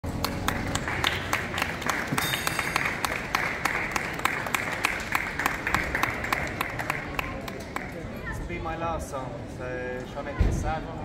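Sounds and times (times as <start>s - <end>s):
people clapping: 0.0s - 8.2s.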